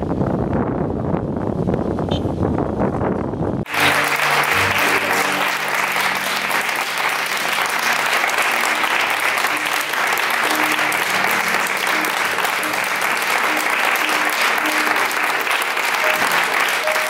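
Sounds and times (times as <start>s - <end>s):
background music with low notes: 3.7s - 17.0s
crowd applauding: 3.7s - 17.0s.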